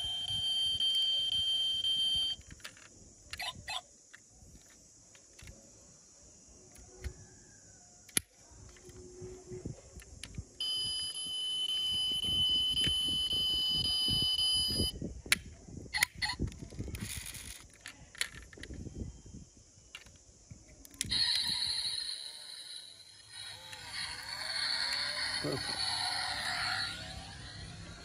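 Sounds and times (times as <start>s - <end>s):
high-pitched electronic buzzer tone: 0.0s - 2.4s, 10.6s - 15.0s.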